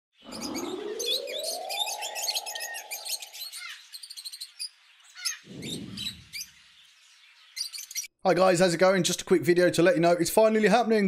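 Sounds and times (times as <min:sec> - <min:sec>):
rising whoosh: 0:00.2 - 0:03.5, 0:05.5 - 0:06.4
lovebirds chirping and twittering: 0:00.2 - 0:08.2
low boom: 0:05.5 - 0:06.4.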